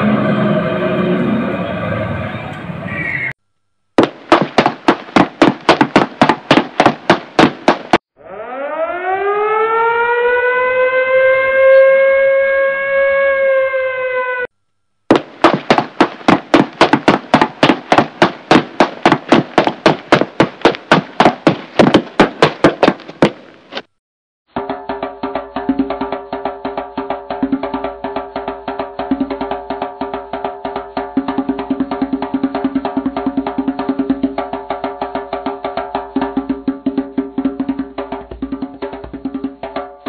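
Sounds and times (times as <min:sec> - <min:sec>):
rapid cartoon knocks: 0:04.0 - 0:08.0, 0:15.1 - 0:23.9, 0:29.8 - 0:40.0
wind-up siren: 0:08.2 - 0:14.5.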